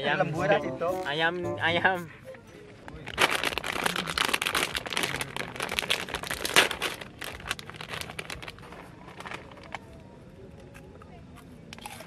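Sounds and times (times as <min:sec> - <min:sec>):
plastic snack bag crinkling: 0:03.0 - 0:10.0.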